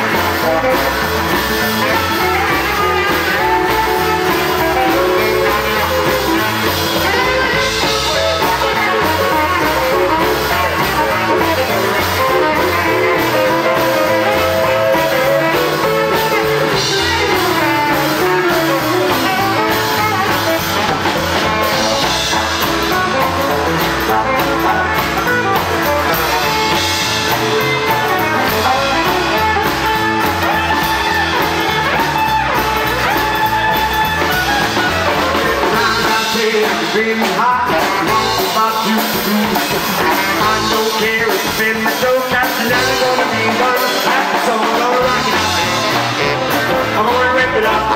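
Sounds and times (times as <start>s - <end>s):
rockabilly band playing: 0.0s - 47.9s.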